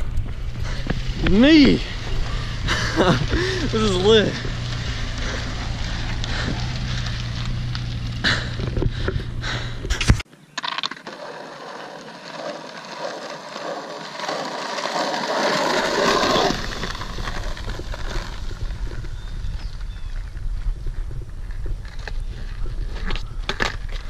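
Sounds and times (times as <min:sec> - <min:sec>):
steady low rumble: 0:00.0 - 0:10.2, 0:15.8 - 0:24.0
skateboard wheels rolling on asphalt: 0:00.0 - 0:24.0.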